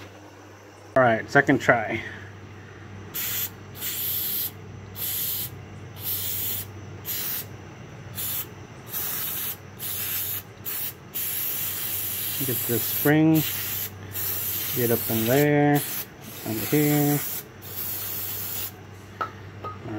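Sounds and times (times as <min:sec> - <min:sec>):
aerosol can spraying bursts: 0:03.2 - 0:07.5, 0:08.2 - 0:18.8.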